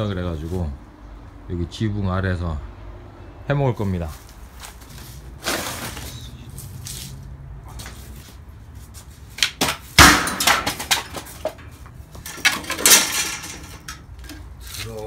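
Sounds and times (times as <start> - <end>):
rustling: 4.0 - 9.3
knocks and clatters of timber: 9.4 - 14.5.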